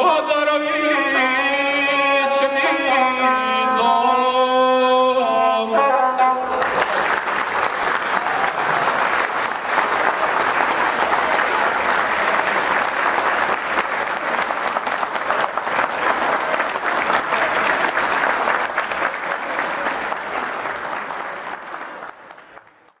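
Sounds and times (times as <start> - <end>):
person singing: 0.0 - 6.6
crowd applauding: 6.4 - 23.0.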